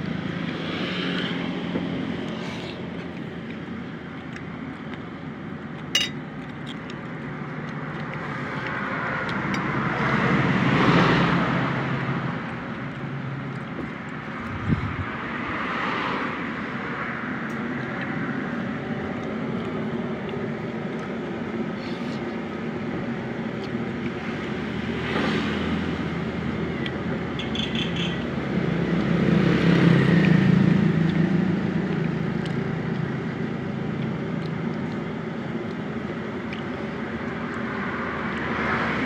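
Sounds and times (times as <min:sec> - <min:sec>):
vehicle passing: 0:00.0 - 0:03.5, 0:07.7 - 0:21.7, 0:22.4 - 0:39.0
road traffic rumble: 0:00.0 - 0:39.0.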